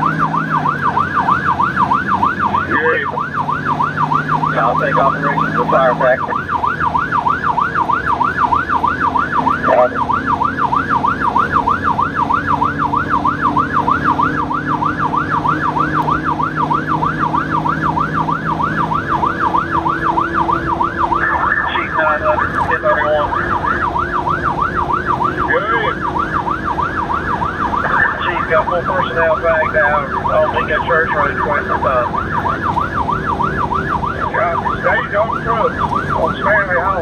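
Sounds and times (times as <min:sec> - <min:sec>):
electronic siren yelping: 0:00.0 - 0:37.0
vehicle engine droning: 0:00.0 - 0:37.0
steady blare: 0:18.6 - 0:37.0.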